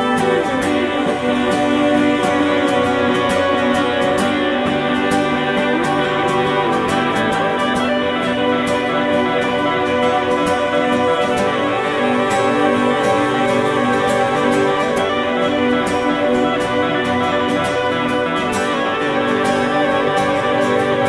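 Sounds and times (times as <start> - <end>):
instrumental progressive rock music: 0.0 - 21.0.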